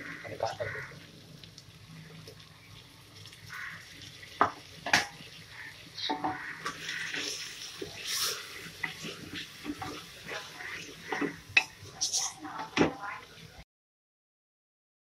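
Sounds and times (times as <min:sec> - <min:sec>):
wooden spatula scraping pot: 0:06.0 - 0:12.8.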